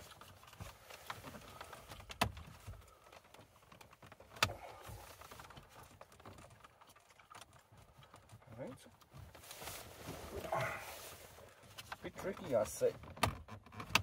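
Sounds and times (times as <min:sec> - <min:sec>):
plastic trim clicking and rattling: 0:11.7 - 0:14.0.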